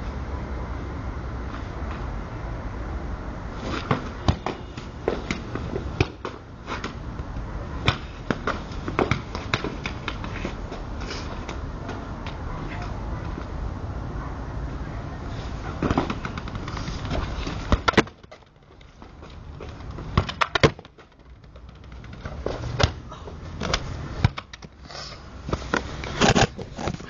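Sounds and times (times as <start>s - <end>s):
football bouncing on paving: 3.9s - 10.8s, 15.8s - 23.0s, 23.6s - 24.6s.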